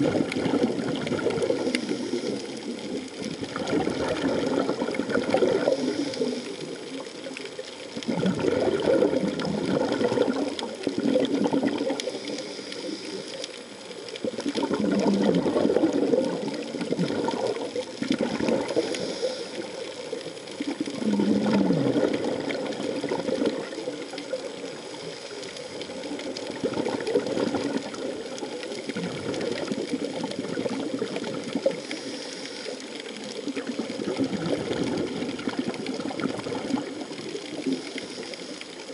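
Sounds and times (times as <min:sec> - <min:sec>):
diver exhaling bubbles: 0:00.0 - 0:13.2, 0:14.2 - 0:25.0, 0:25.7 - 0:32.7, 0:33.3 - 0:38.9
regulator breathing hiss: 0:01.6 - 0:02.9, 0:05.6 - 0:06.9, 0:12.0 - 0:13.6, 0:18.6 - 0:20.1, 0:24.7 - 0:26.0, 0:31.7 - 0:33.0, 0:37.7 - 0:38.9.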